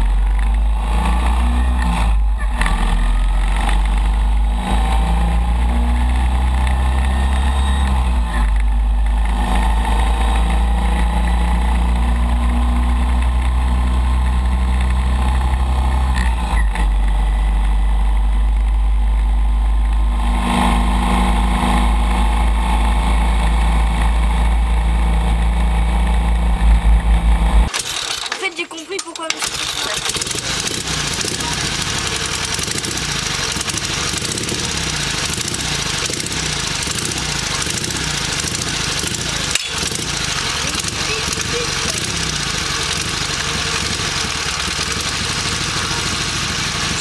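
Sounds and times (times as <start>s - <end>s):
motorcycle engine pulling: 0.0s - 17.8s, 27.6s - 47.0s.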